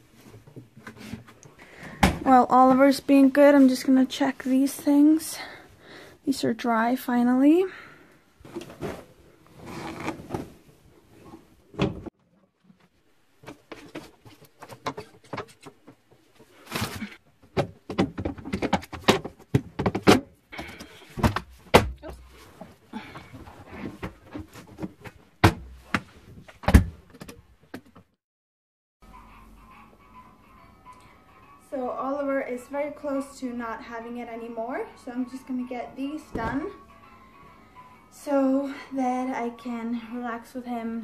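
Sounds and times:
fabric rustling: 8.4 - 11.6
sharp knocks and thuds: 17.4 - 22.3, 23.9 - 27.2.

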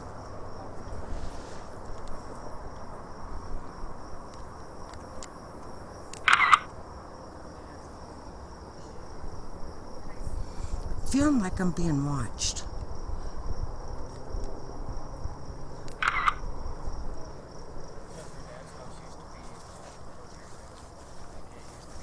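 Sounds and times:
low outdoor hiss: 0.0 - 22.0
night insects chirping: 0.0 - 22.0.

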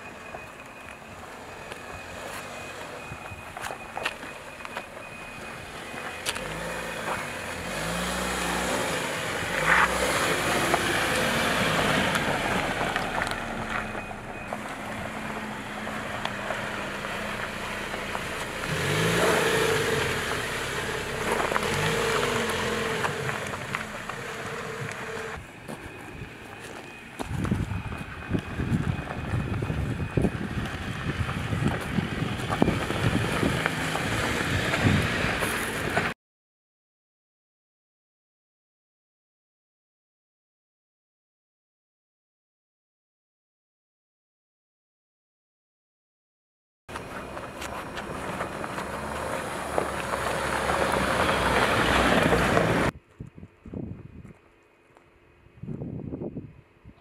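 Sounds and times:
gravel crunching under tyres: 0.0 - 36.2, 46.9 - 56.0
vehicle engine rumble: 0.0 - 36.2, 46.9 - 57.0
wind on microphone: 27.2 - 33.7, 52.9 - 54.4, 55.5 - 57.0.

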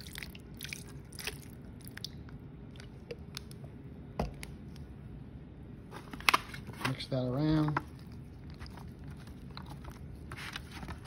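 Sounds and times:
wet squishes of sauced ribs: 0.0 - 3.6.

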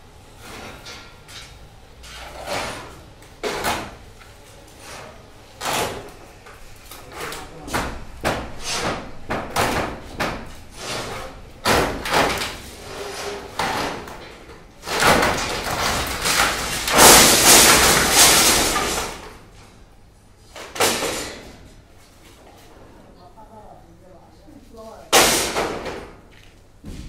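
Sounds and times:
boards clattering and scraping: 7.0 - 19.4.

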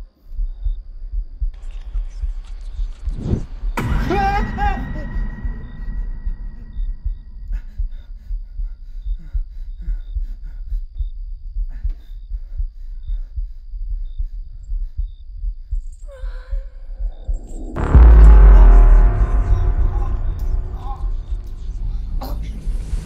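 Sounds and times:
low pulsing heartbeat: 0.0 - 23.0
loud sudden hit: 3.7 - 7.4, 17.0 - 23.0.

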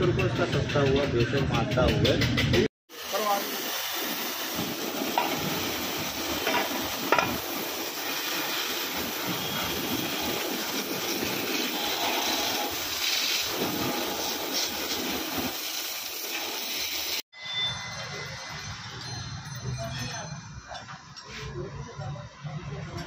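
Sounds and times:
water jet spraying: 2.9 - 17.2.

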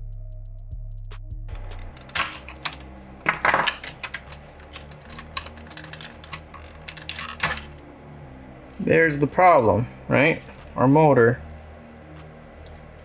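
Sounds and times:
hard plastic clicking and scraping: 1.6 - 7.8.

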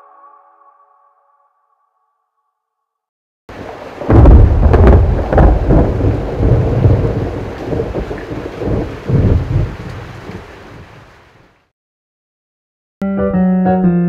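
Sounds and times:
thunder crack and rumble: 3.5 - 10.9
rain hiss: 3.5 - 11.6.

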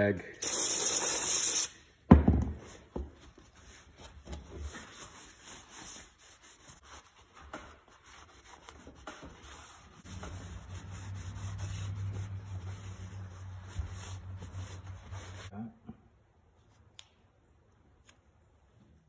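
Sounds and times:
towel rubbing on metal: 3.4 - 15.5.

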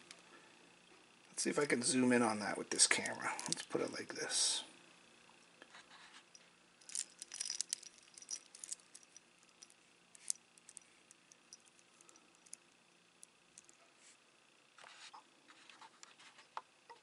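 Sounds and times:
metal watch bracelet clinking: 6.8 - 12.6.

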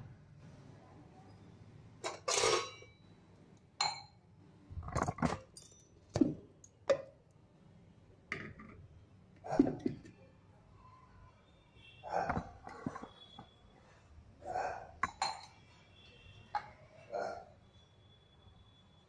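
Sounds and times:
steel vessels knocking and clinking: 2.0 - 2.9, 15.0 - 15.6.

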